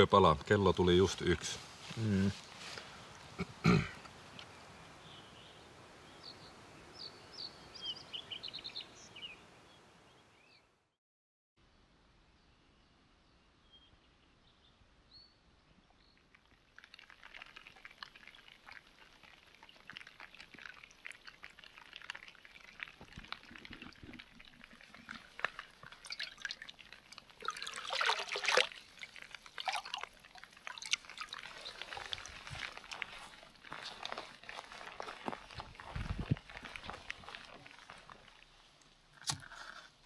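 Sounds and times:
water splashing and trickling: 15.8 - 40.0
water gushing: 16.5 - 38.5.

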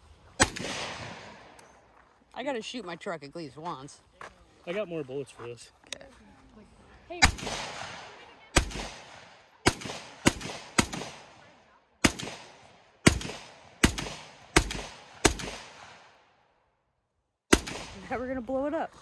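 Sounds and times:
rifle shots with echo: 0.4 - 1.6, 7.1 - 16.4, 17.5 - 18.5.

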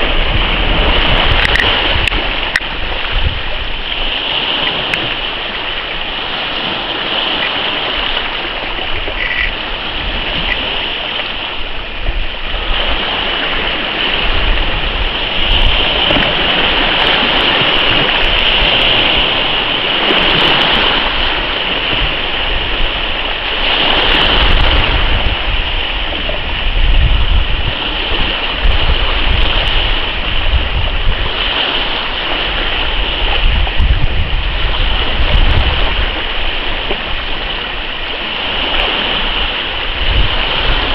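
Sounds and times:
wind rushing: 0.0 - 4.1, 11.3 - 31.4, 32.8 - 36.7
choppy sea water: 0.0 - 40.9
wind buffeting microphone: 0.0 - 40.9.

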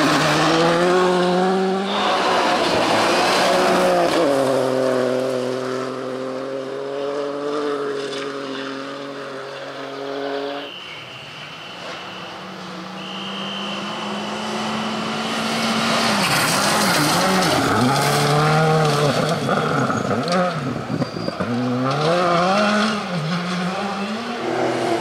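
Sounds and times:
rally car engine at high revs: 0.0 - 10.7, 11.9 - 25.0
car sliding on gravel: 1.9 - 5.4, 15.3 - 20.2.

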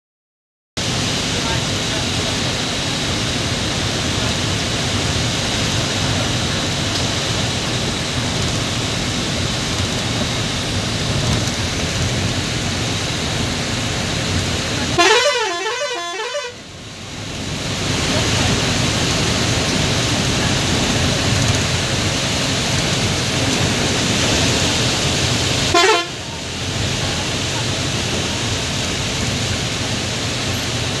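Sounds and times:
bus engine running: 0.8 - 31.0
heavy rain: 0.8 - 31.0
horn with wavering pitch: 15.0 - 16.6, 25.7 - 26.3.

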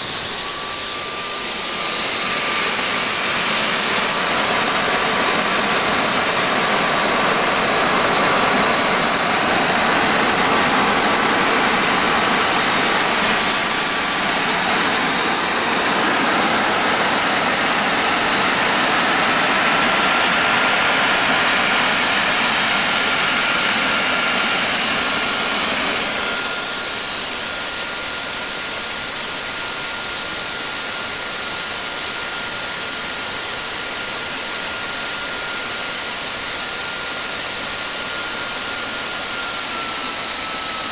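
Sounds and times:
jet engine rushing: 0.0 - 27.7
high turbine whine: 0.0 - 40.9.

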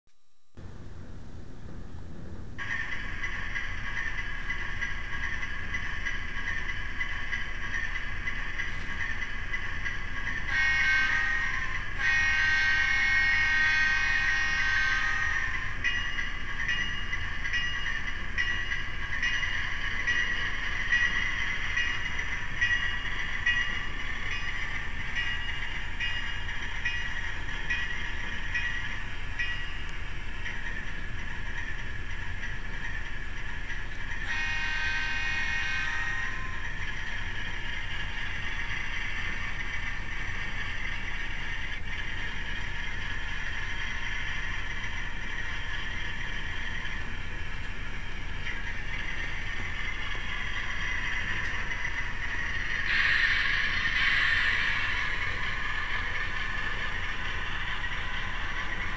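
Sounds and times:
locomotive bell ringing: 2.6 - 58.9
locomotive horn blasts: 10.5 - 15.6, 34.3 - 36.6, 52.9 - 53.6.

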